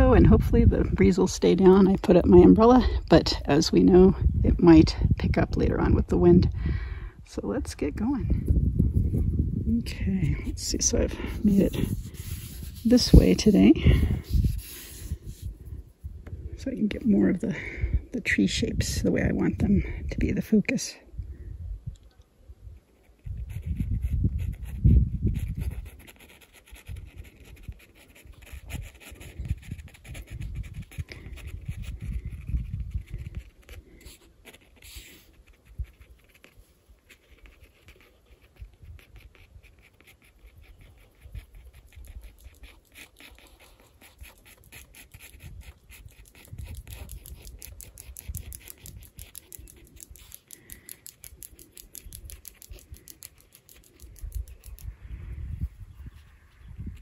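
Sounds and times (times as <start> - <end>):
wind rumbling on microphone: 0.0 - 57.0
pencil scratching on paper: 10.3 - 15.6, 23.0 - 50.6.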